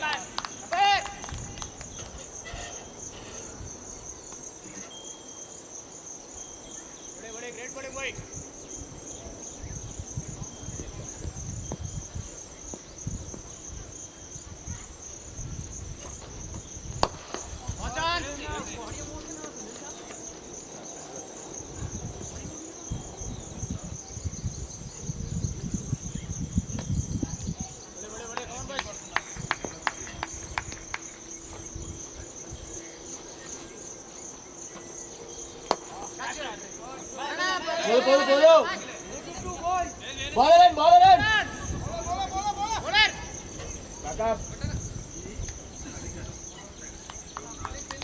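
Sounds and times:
low rumble of wind: 0:00.0 - 0:04.7, 0:05.4 - 0:37.2, 0:38.8 - 0:48.0
insects chirring: 0:00.0 - 0:48.0
sharp crack: 0:17.0 - 0:17.7, 0:35.6 - 0:36.1.

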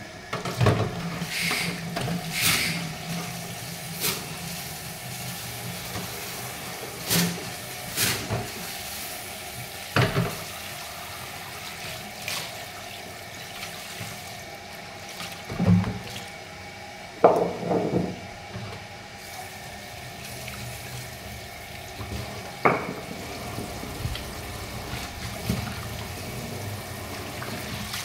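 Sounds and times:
tap water running: 0:00.3 - 0:16.4, 0:17.2 - 0:28.0.

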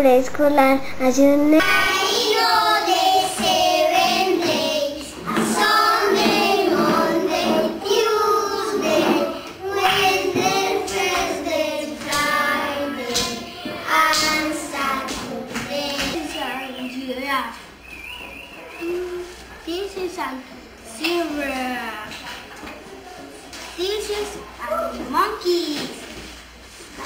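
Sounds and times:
young children singing: 0:01.6 - 0:17.2.

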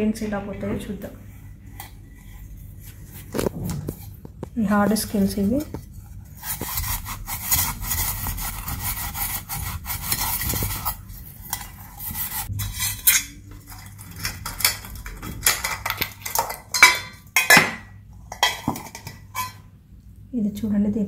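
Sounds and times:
scrub pad scraping metal plate: 0:06.3 - 0:13.2.

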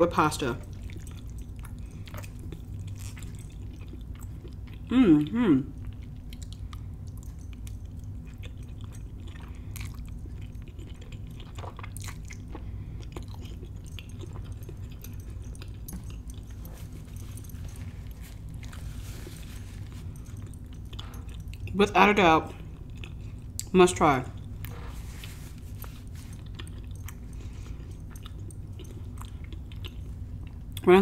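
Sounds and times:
low steady hum: 0:00.0 - 0:31.0
mouth chewing pasta: 0:00.3 - 0:30.9
paper napkin rustle: 0:16.5 - 0:20.2, 0:24.8 - 0:26.5.

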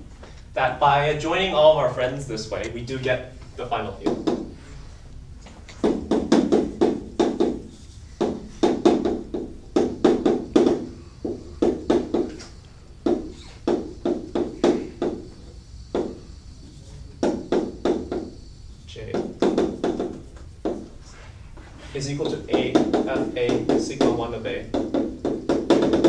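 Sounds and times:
chalk tapping on blackboard: 0:04.0 - 0:04.6, 0:05.7 - 0:26.0.

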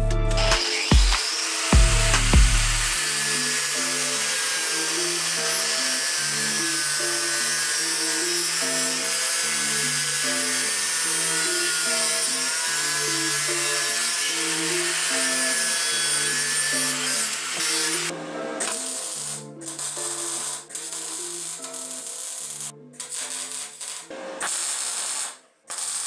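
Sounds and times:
background music: 0:00.0 - 0:26.0
angle grinder cutting steel: 0:00.3 - 0:26.0.

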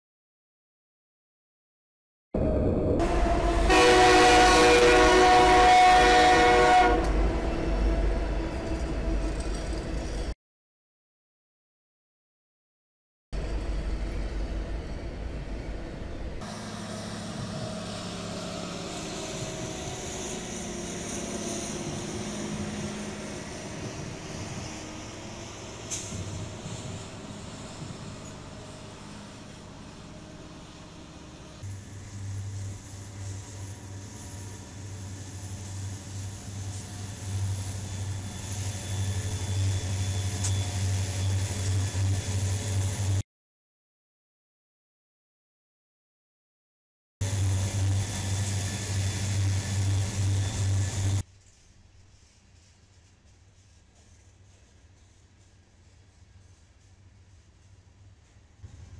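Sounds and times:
diesel locomotive engines droning: 0:02.4 - 0:10.3, 0:13.4 - 0:43.2, 0:47.2 - 0:58.9
freight train rumbling by: 0:02.4 - 0:10.4, 0:13.4 - 0:43.2, 0:47.2 - 0:58.9
track machines passing: 0:02.4 - 0:10.4, 0:13.4 - 0:43.2, 0:47.2 - 0:51.3.

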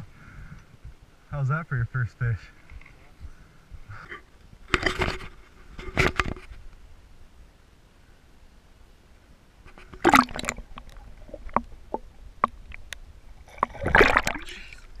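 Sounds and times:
underwater clicks: 0:09.7 - 0:14.4
water splashing: 0:09.7 - 0:15.0
underwater bubbling: 0:09.8 - 0:15.0.

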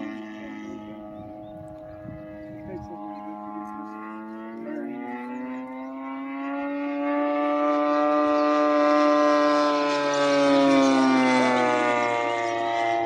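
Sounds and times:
model plane propeller droning: 0:00.0 - 0:13.0.

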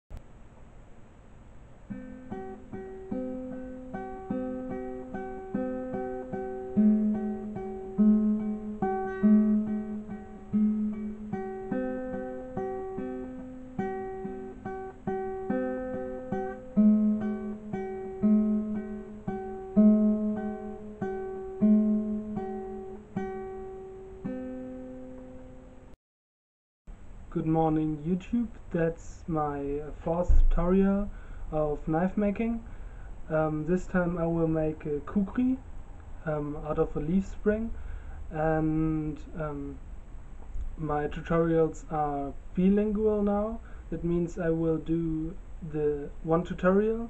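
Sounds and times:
acoustic guitar picking: 0:01.8 - 0:25.8.

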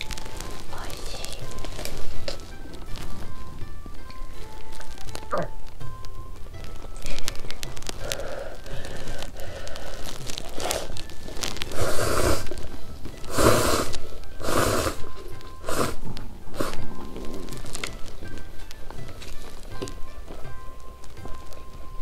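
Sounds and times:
soft background music: 0:00.0 - 0:22.0
noodle soup slurping: 0:08.0 - 0:17.8.

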